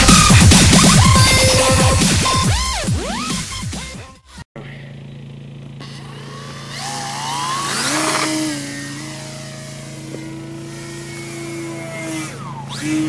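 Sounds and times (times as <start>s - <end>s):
model plane electric motor whine: 5.8s - 13.0s.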